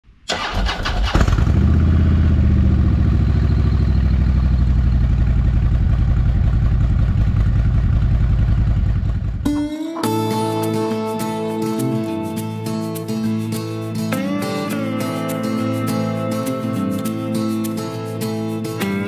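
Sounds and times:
motorcycle engine starting and idling: 0.3s - 10.6s.

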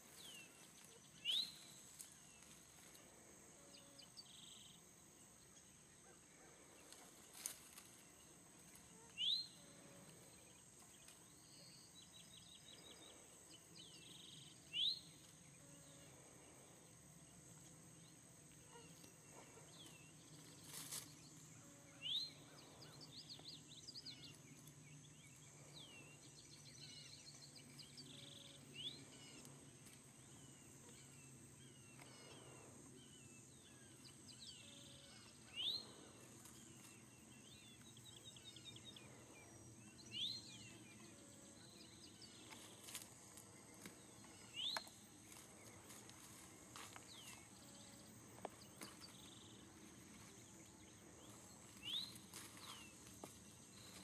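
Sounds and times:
birds chirping and trilling: 17.6s - 54.0s.

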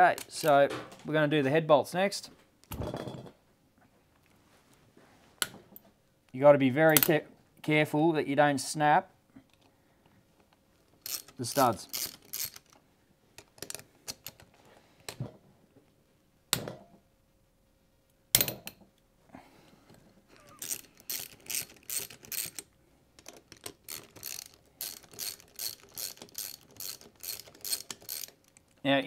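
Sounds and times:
socket ratchet clicking: 11.0s - 12.8s, 20.4s - 28.8s.

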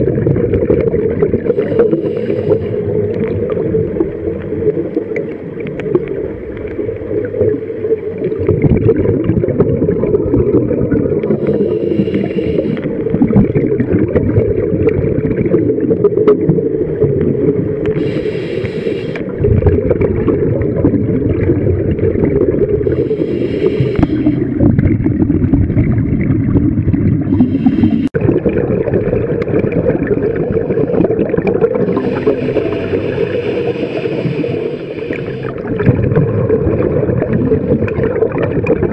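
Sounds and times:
underwater bubbles gurgling: 0.0s - 38.9s
regulator breathing hiss: 1.5s - 3.0s, 11.3s - 13.0s, 17.9s - 19.3s, 22.9s - 24.6s, 27.3s - 28.2s, 31.9s - 35.7s.

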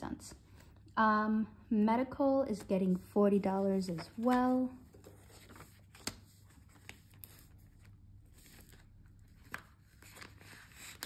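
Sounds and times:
paper and plastic rustling: 3.8s - 11.0s.

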